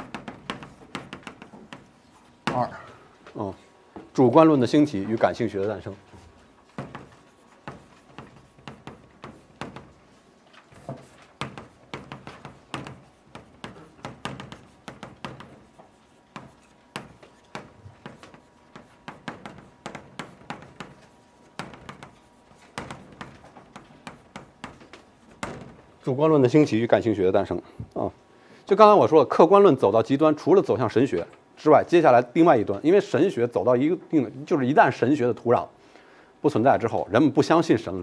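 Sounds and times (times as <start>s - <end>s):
chalk tapping and scraping: 0.0s - 2.8s, 4.9s - 26.0s.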